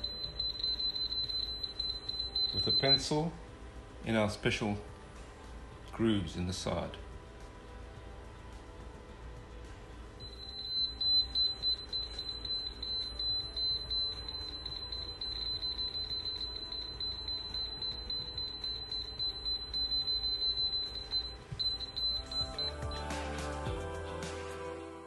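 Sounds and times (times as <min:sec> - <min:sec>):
high electronic beeping tone: 0:00.0 - 0:03.3, 0:10.2 - 0:23.1.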